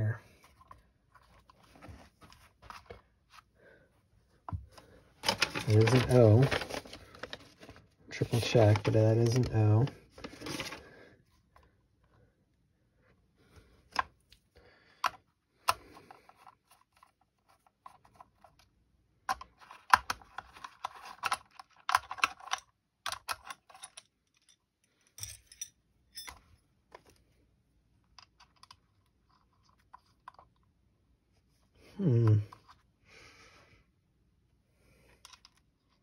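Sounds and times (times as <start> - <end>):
small metal parts clicking: 21.9 - 26.4.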